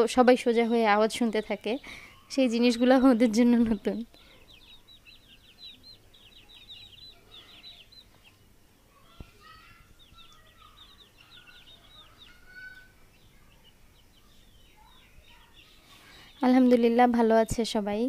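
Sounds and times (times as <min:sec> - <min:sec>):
chicks peeping: 0:00.0 - 0:18.0.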